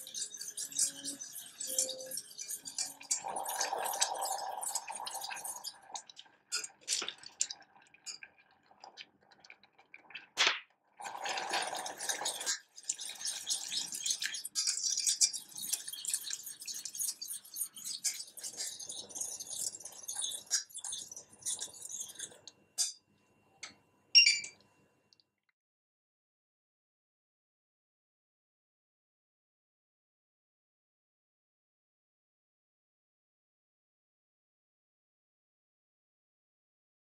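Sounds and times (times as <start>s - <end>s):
whisk scraping a metal saucepan: 0.0s - 8.2s, 11.0s - 23.0s.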